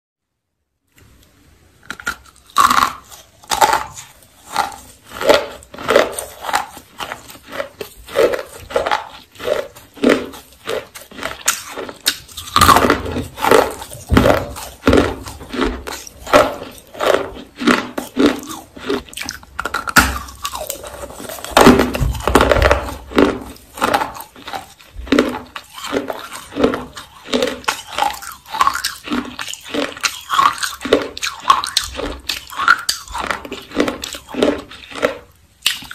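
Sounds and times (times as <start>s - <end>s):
dry crunchy chewing: 1.8s - 35.9s.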